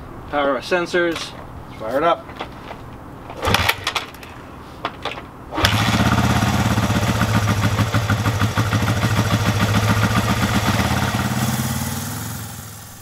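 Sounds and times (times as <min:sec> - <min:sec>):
motorcycle engine starting: 0:03.3 - 0:04.3, 0:05.5 - 0:13.0.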